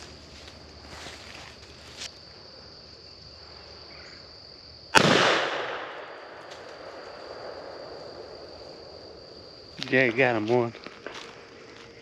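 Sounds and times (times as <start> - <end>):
high insect buzz: 0.0 - 5.1, 6.0 - 12.0
shotgun shot echoing: 5.0 - 7.7.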